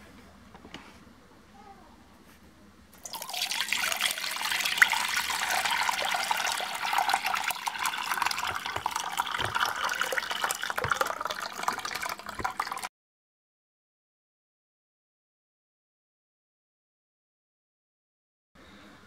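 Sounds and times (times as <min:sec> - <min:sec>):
liquid pouring through a strainer: 0:03.0 - 0:12.9.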